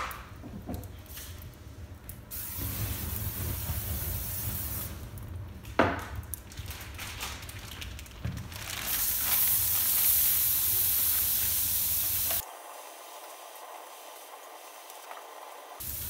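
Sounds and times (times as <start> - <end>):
meat sizzling on a grill: 2.3 - 5.0, 8.8 - 16.0.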